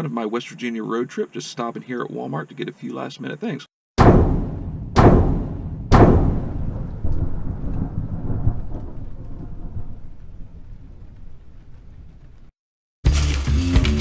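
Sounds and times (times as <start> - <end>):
heavy booms: 4.0 - 11.9
low rumble: 4.0 - 12.5.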